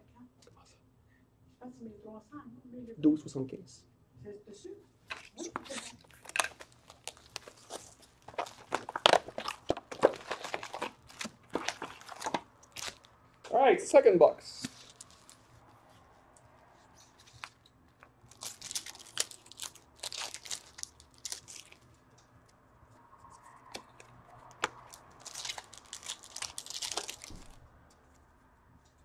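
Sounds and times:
wrappers tearing and crinkling: 5.1 - 13.2, 14.6 - 15.5, 17.0 - 21.9, 23.7 - 27.7.

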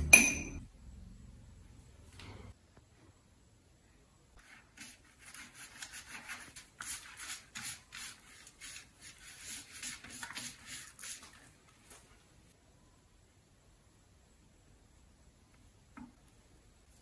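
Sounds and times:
pastry brush scratching metal tin: 4.4 - 11.5.

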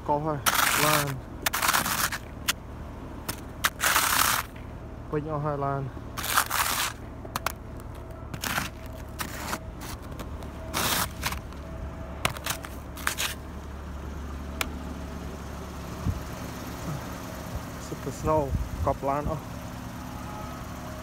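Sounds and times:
truck engine idling: 0.0 - 21.0.

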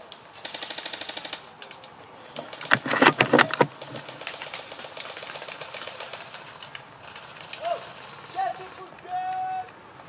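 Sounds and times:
sharp clattering knocks: 2.5 - 5.4.

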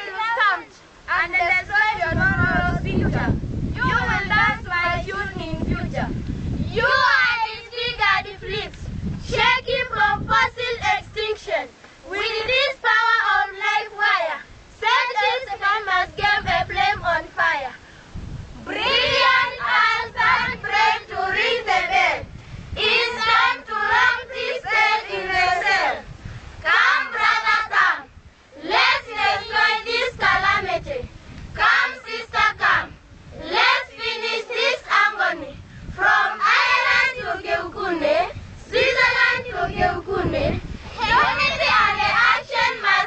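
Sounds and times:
children singing together: 6.7 - 8.7, 12.1 - 17.3, 18.6 - 26.0, 26.6 - 31.0, 31.6 - 43.0.

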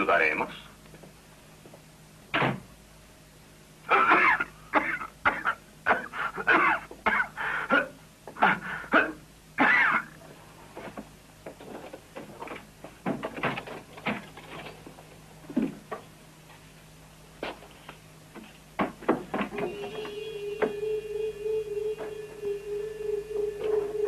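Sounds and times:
man laughing: 3.9 - 4.6.

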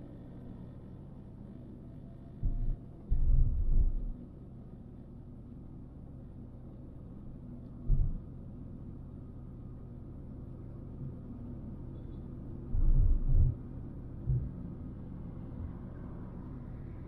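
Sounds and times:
car driving on road: 0.0 - 17.0
loud low thuds: 2.4 - 4.1, 7.9 - 8.2.

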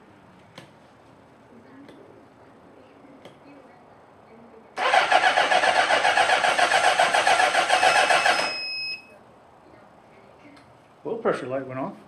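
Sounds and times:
motorcycle engine cranking: 4.8 - 8.5.

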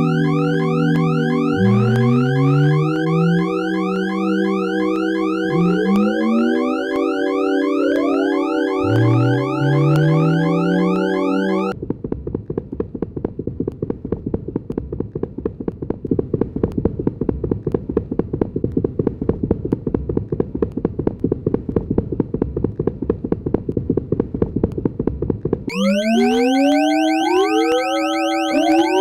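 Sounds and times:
low pulsing buzz of clicks: 0.0 - 11.7
rising gliding synthetic tones: 0.0 - 11.8, 25.7 - 29.0.

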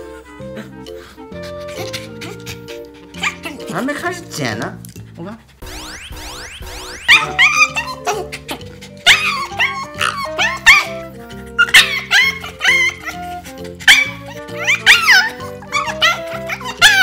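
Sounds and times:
background music: 0.0 - 17.0
dog squealing: 1.4 - 3.7, 7.0 - 17.0.

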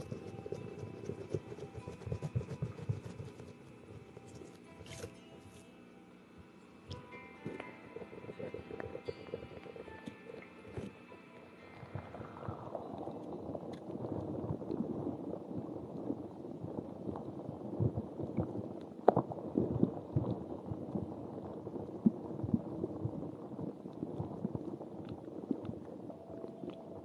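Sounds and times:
ball rubbing on microphone: 0.0 - 5.6.

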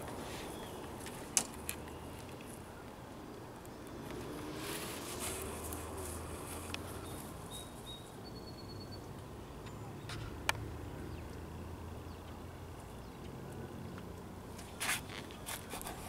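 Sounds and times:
faint bird chirps: 7.0 - 10.1.

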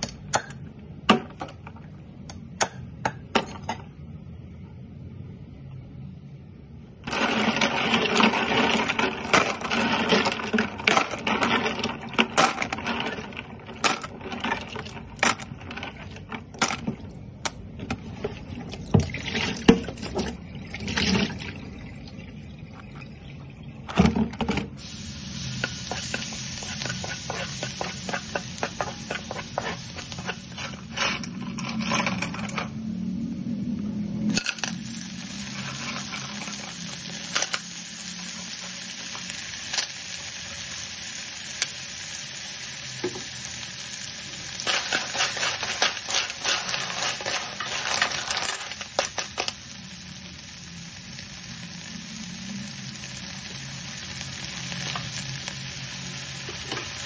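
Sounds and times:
garlic sizzling in hot oil: 24.8 - 31.3, 34.5 - 57.0.

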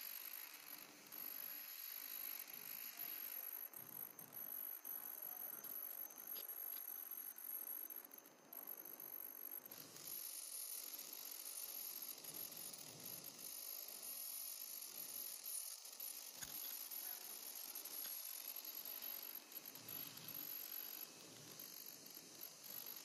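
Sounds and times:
light mechanical clatter: 15.8 - 23.0.

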